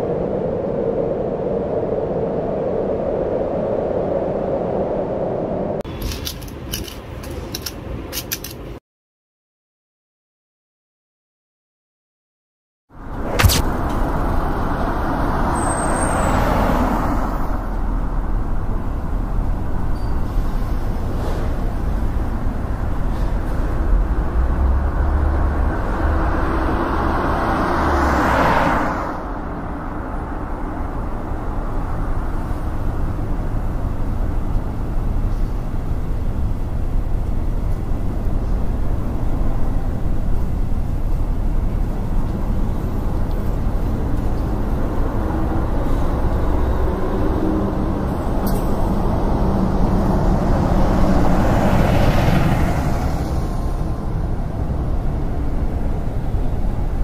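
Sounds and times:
steady background rumble: 29.3 - 57.0.

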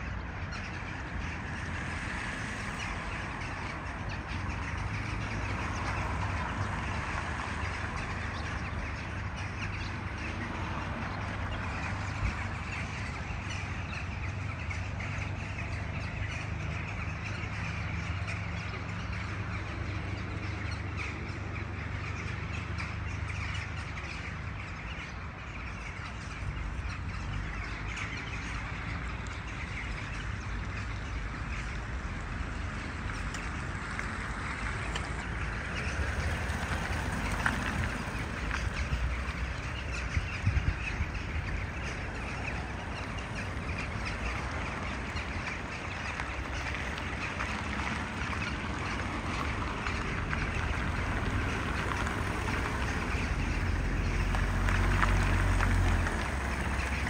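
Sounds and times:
flock of birds calling: 0.0 - 57.0.

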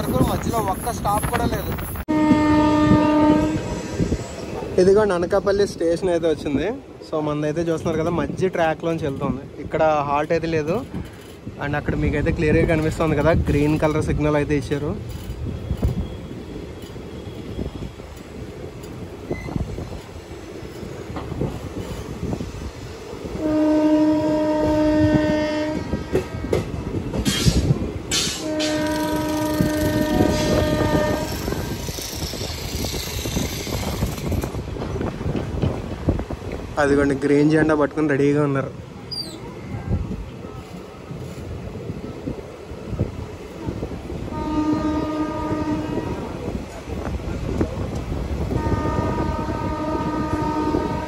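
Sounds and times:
train rumbling and clattering: 0.0 - 51.0
train horn blasts: 2.0 - 4.4, 23.3 - 26.7, 28.2 - 32.1, 44.2 - 46.4, 48.4 - 51.0.

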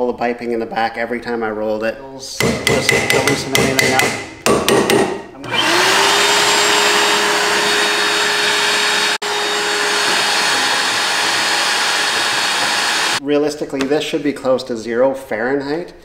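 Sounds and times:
blower air rushing: 5.4 - 13.2
motor whine and hum: 5.4 - 13.2.

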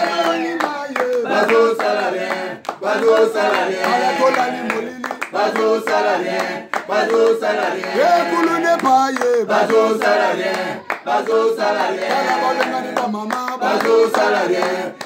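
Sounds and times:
group chanting in chorus: 0.0 - 8.8, 9.4 - 15.0
hand clapping: 0.0 - 15.0.

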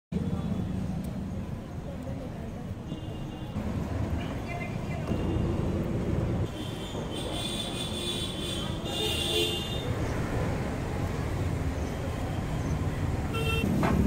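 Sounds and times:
road traffic rumble: 0.1 - 14.0
horn honk: 13.3 - 13.7.

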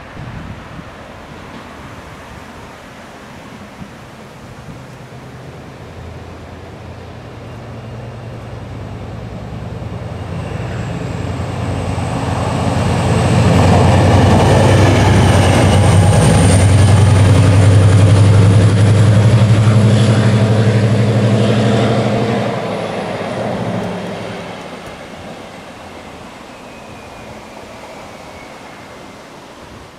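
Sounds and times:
locomotive passing: 0.0 - 29.9
thin high whine: 7.0 - 29.9.

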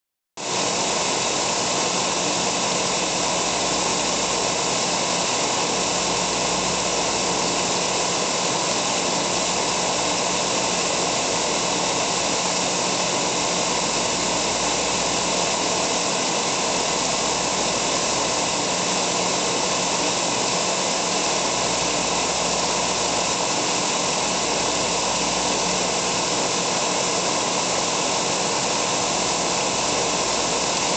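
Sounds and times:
boring mill machine hum: 0.4 - 30.9
coolant spraying hiss: 0.4 - 30.9.

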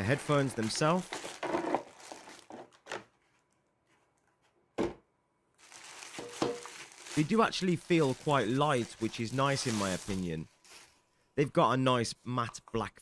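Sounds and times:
plastic bag rustling: 0.0 - 2.8, 5.6 - 11.1.

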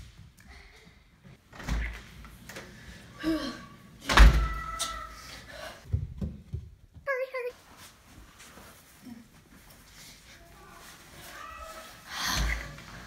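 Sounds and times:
door banging shut: 4.0 - 4.7.

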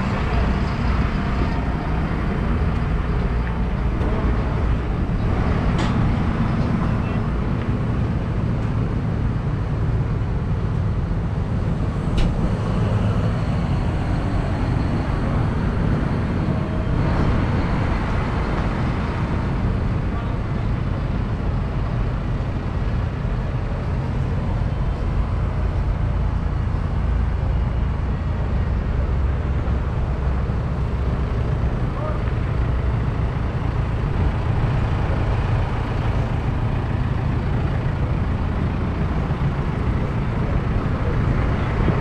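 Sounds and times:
low rumble: 0.0 - 42.0
faint voices: 31.8 - 32.4.

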